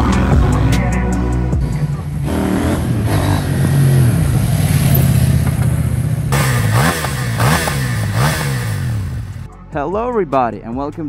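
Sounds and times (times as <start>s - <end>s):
motorcycle engine running: 0.0s - 9.5s
motorcycle throttle blips: 1.6s - 9.5s.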